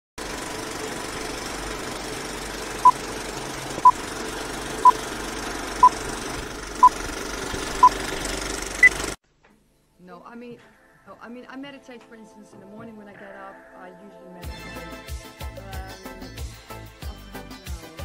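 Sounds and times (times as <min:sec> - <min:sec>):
film projector rattling: 0:00.2 - 0:09.2.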